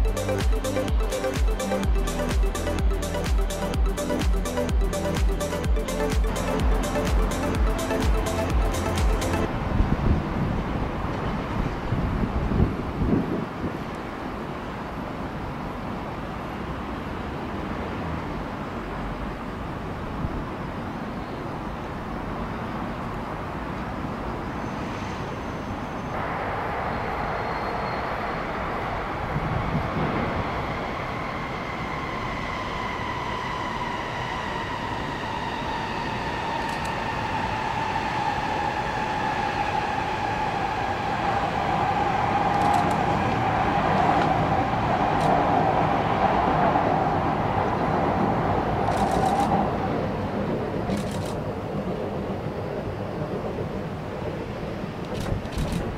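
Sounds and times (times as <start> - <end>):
train rumble: 0.0 - 55.9
train traction motors whining: 29.0 - 46.5.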